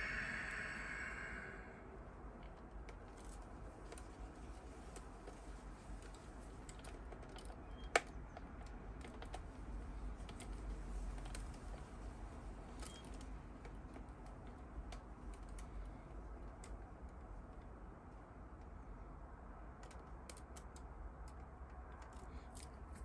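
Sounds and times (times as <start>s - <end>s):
low steady hum: 0.0s - 6.9s.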